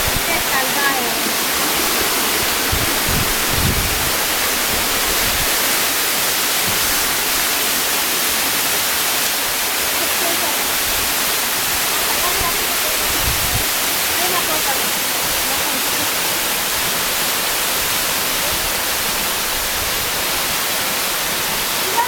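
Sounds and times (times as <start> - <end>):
waterfall rushing over rocks: 0.0 - 22.0.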